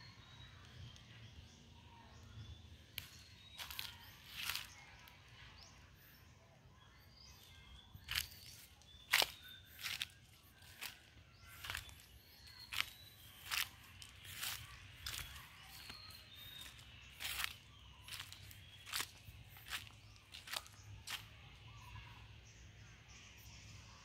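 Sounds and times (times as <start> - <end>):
faint high chirps: 0.0 - 24.0
footsteps crunching dry leaves: 3.0 - 5.0, 7.9 - 21.8.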